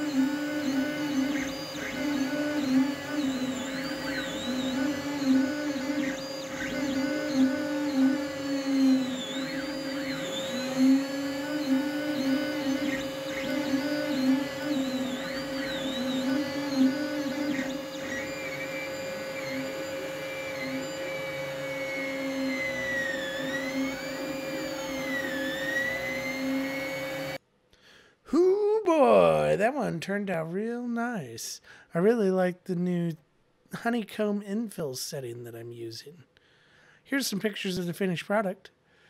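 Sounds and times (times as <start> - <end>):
stepper motors whining: 0.0 - 27.4.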